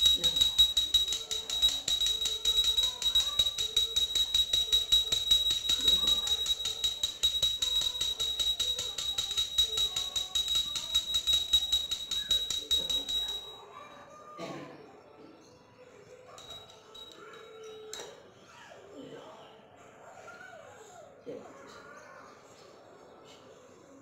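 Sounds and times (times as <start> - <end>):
small bells jingling: 0.0 - 13.9, 16.3 - 18.1
faint sung melody: 0.0 - 20.2.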